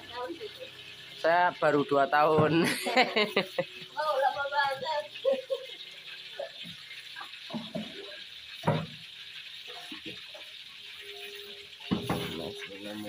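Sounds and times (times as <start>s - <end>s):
objects clattering and knocking: 6.4s - 9.1s, 11.8s - 13.0s.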